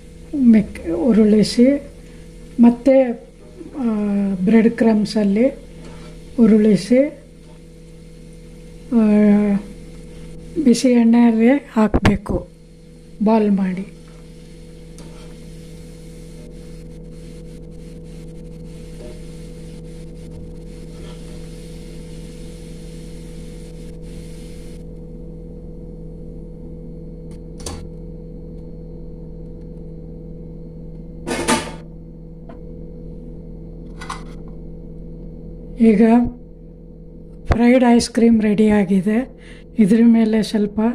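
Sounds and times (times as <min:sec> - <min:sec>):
hot oil sizzling and crackling: 0:00.0 - 0:11.8, 0:12.5 - 0:25.0
steady low hum: 0:00.0 - 0:40.9.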